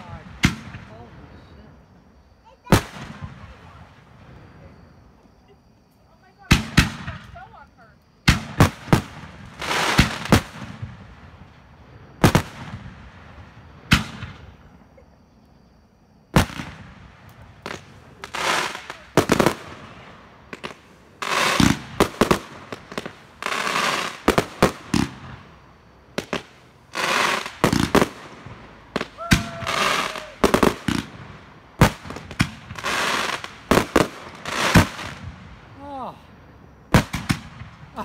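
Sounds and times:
firework noisy rushes: 26.3s - 35.4s.

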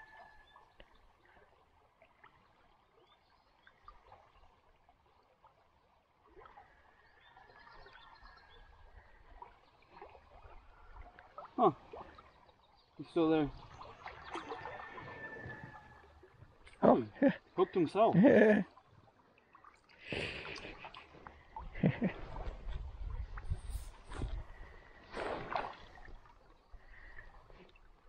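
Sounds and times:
rocky stream running: 8.9s - 28.0s.

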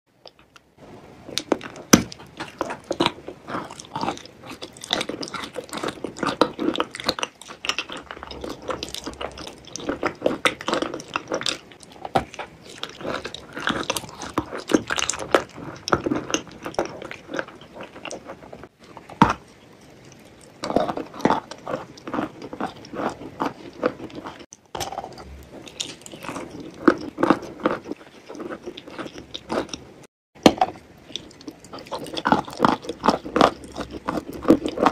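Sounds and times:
wet sticky chewing: 1.3s - 34.9s.

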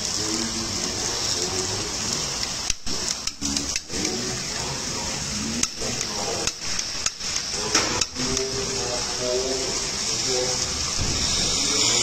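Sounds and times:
kitchen hiss: 0.0s - 12.0s
faint voices: 7.5s - 12.0s.

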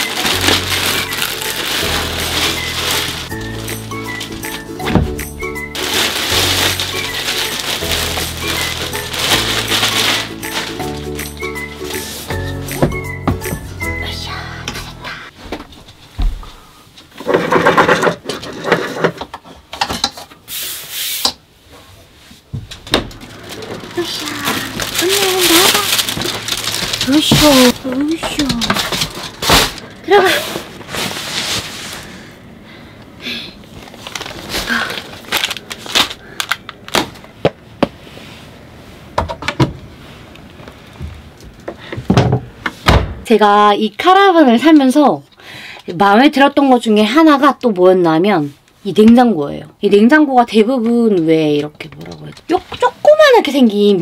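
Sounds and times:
rustling and rubbing: 0.0s - 4.7s, 5.6s - 12.4s, 23.2s - 32.2s.

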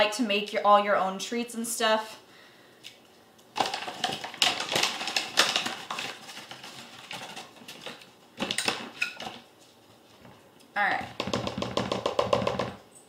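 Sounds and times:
paper bag crinkling: 3.6s - 9.8s.

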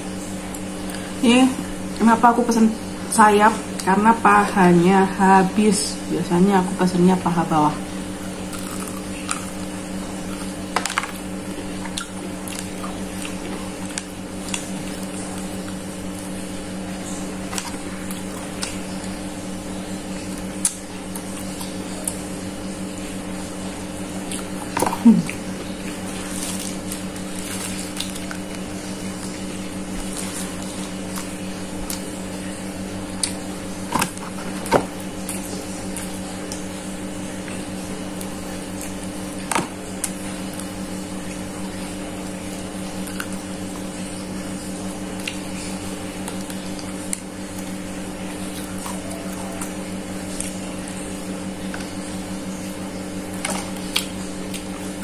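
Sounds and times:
steady mechanical hum: 0.0s - 55.0s
chewing and lip smacks: 20.4s - 22.2s, 45.2s - 45.4s, 53.5s - 54.8s.

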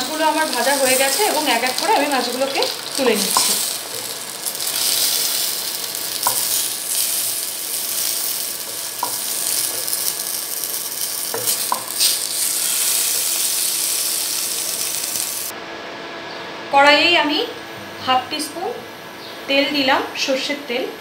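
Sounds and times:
fish sizzling in hot oil: 0.0s - 15.5s.

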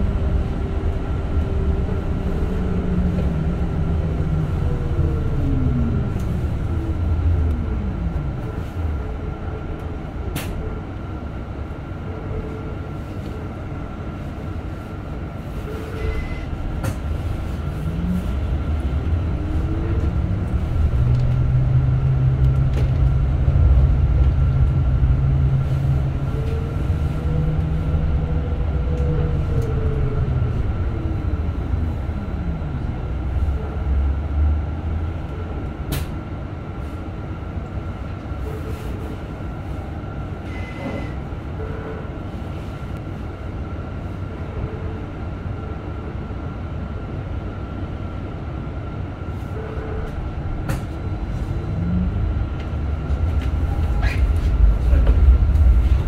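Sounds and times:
electric bus motor whine: 0.0s - 38.5s.

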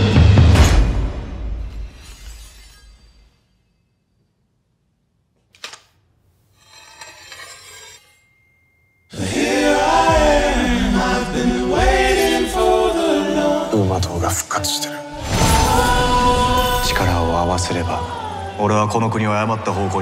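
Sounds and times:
sword drawn from sheath: 1.7s - 3.4s, 6.6s - 8.3s
dramatic music with chanting: 9.1s - 20.0s.

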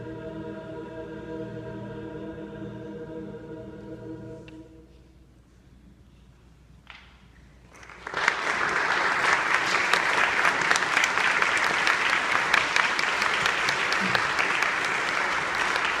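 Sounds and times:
audience applause: 7.7s - 16.0s.

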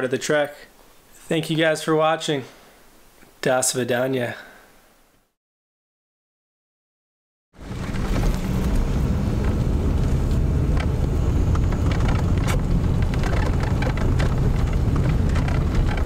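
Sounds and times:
engine and road rumble: 7.6s - 16.0s
small knocks and rattles: 10.7s - 16.0s.

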